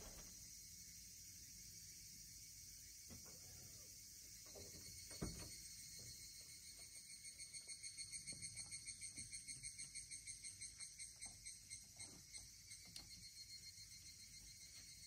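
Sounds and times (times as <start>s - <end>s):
insects chirping: 0.0s - 15.0s.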